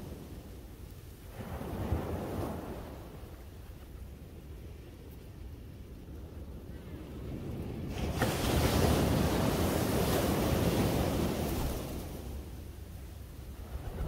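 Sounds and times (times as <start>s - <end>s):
wind rumble on microphone: 0.0s - 14.0s
sea waves breaking on beach: 1.3s - 3.4s, 7.0s - 12.6s.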